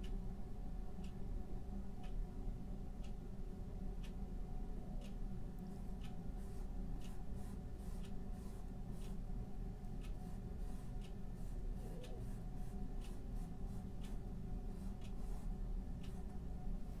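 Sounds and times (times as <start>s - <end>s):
steady low hum: 0.0s - 17.0s
paintbrush stroking canvas: 10.2s - 15.5s.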